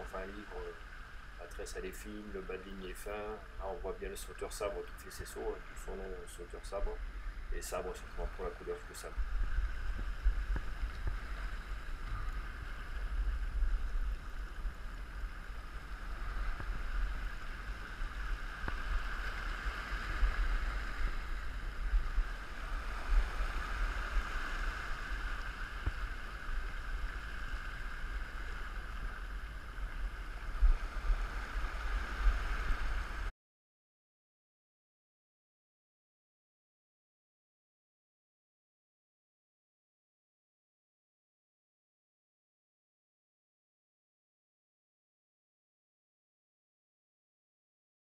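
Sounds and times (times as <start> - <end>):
waves washing over rocks: 0.0 - 33.3
wind rumbling on microphone: 0.0 - 33.3.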